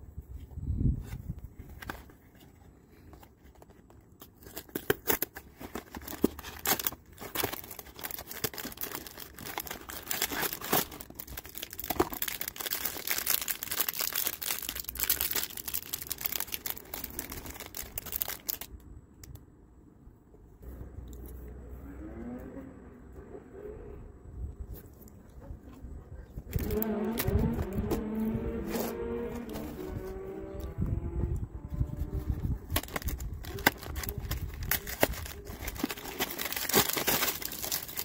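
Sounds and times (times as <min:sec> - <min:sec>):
packaging torn and crinkled: 0:04.2 - 0:19.4, 0:26.5 - 0:28.0, 0:32.3 - 0:38.0.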